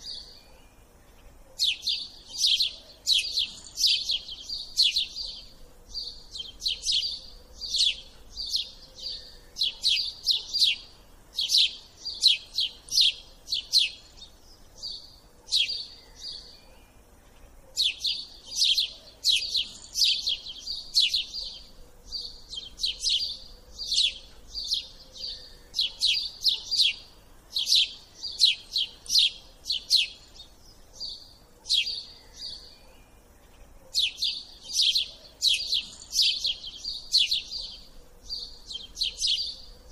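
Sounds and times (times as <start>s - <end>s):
small bird chirping: 0.0s - 39.9s.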